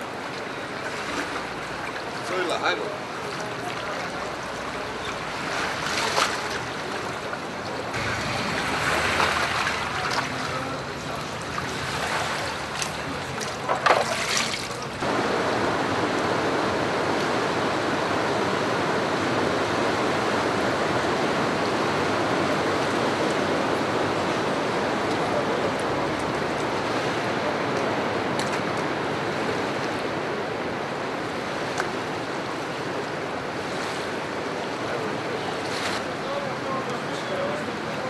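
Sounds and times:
wading through water: 0.0 - 15.9
river rushing: 0.0 - 38.0.

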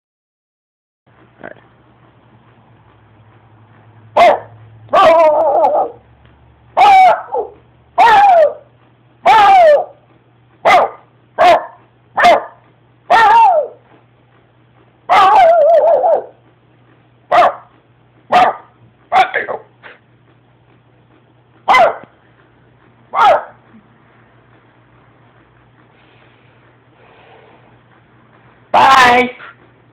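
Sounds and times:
dog barking: 4.2 - 6.0, 6.8 - 10.0, 10.6 - 13.8, 15.1 - 16.4, 17.3 - 17.7, 18.3 - 20.0, 21.6 - 22.1, 23.1 - 23.6.

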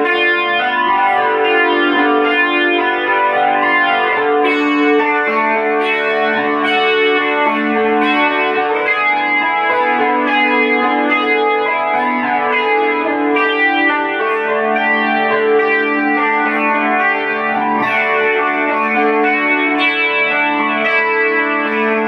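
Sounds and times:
electric guitar chords: 0.0 - 22.0.

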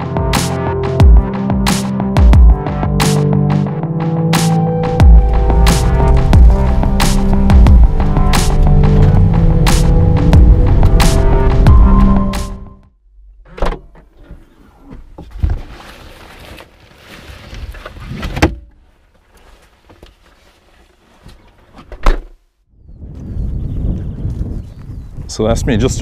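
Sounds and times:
background music: 0.0 - 12.9.

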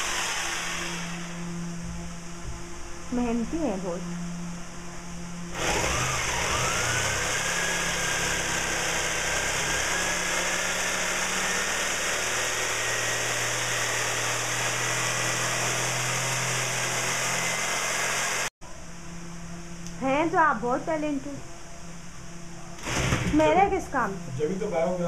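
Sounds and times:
electric jigsaw sawing wood: 0.0 - 1.5, 5.5 - 18.6, 22.8 - 23.4.

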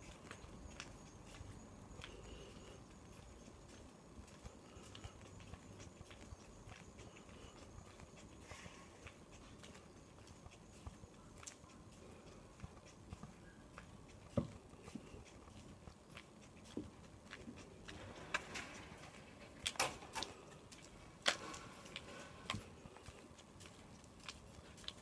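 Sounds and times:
footsteps on asphalt: 0.0 - 25.0.

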